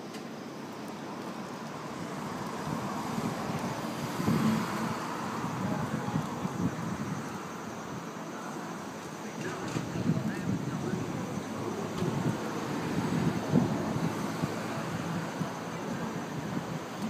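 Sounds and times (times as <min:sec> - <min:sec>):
city rumble: 0:00.0 - 0:17.0
vehicle passing: 0:02.2 - 0:07.0.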